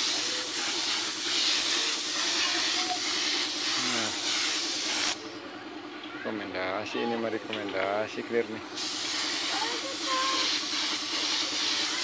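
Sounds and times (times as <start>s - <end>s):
spray gun hissing: 0.0s - 5.2s, 8.8s - 12.0s.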